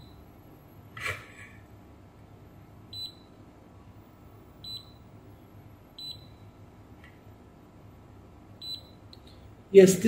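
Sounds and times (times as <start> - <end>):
multimeter short high beeps: 3.0 - 3.4, 4.6 - 5.0, 6.0 - 6.5, 8.6 - 9.0.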